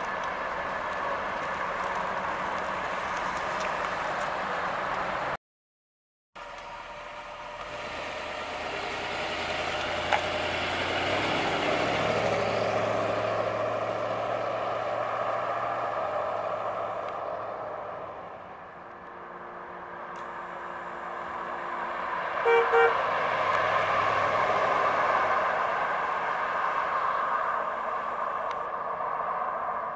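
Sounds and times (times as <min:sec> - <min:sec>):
car engine driving past: 0:06.4 - 0:29.9
car horn toots: 0:22.4 - 0:23.0.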